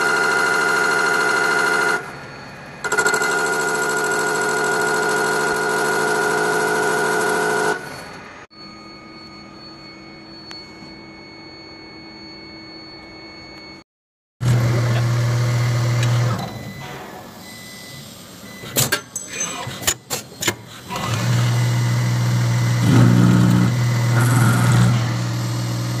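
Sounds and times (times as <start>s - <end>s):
lathe machine hum: 14.4s - 16.4s, 20.9s - 26.0s.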